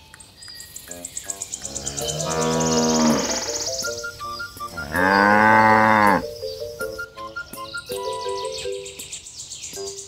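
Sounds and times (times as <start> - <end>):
low animal call: 1.0 - 3.9, 4.6 - 6.2
cow mooing: 1.6 - 3.7, 4.8 - 6.2
light background music: 2.1 - 10.0.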